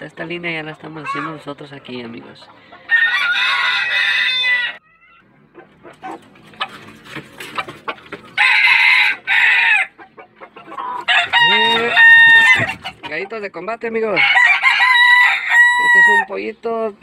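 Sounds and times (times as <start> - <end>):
roosters crowing: 2.6 - 5.4, 7.5 - 13.2, 14.1 - 16.4
soft clucks: 5.0 - 8.4, 9.9 - 11.1, 12.4 - 13.5.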